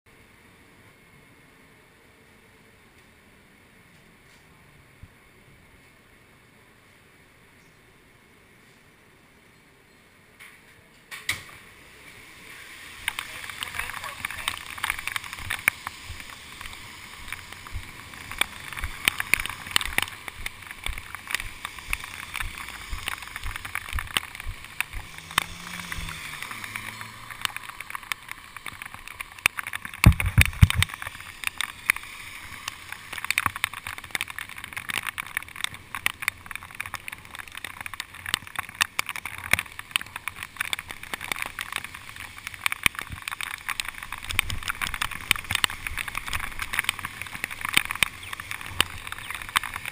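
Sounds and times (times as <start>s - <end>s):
rain ticks and taps: 11.1s - 49.9s
bicycle tyres hissing on wet pavement: 11.3s - 49.9s.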